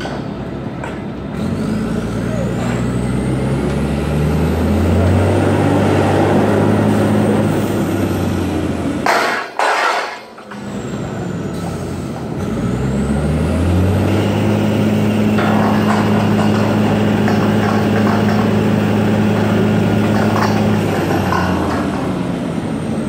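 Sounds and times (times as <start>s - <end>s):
engine revving: 1.3s - 9.0s, 12.3s - 23.0s.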